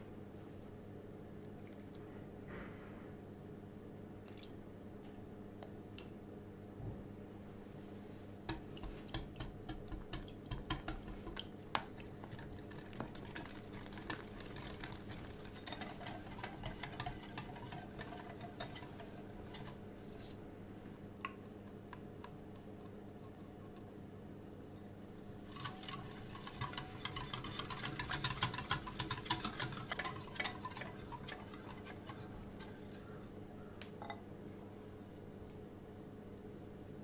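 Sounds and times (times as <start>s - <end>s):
faint steady hum: 0.0s - 37.0s
whisk clicking against glass bowl: 8.5s - 19.8s, 25.5s - 33.2s
wet swishing of batter: 11.5s - 20.4s, 25.4s - 33.2s.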